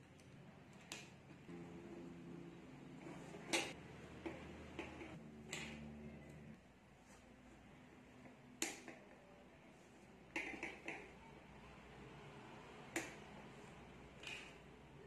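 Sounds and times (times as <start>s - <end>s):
plastic sticks snapping clicks: 0.8s - 1.2s, 8.6s - 9.0s.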